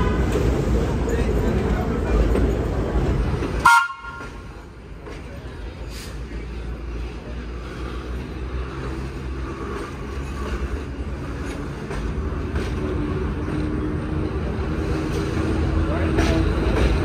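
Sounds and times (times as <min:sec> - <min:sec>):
train rumbling on track: 0:00.0 - 0:17.0.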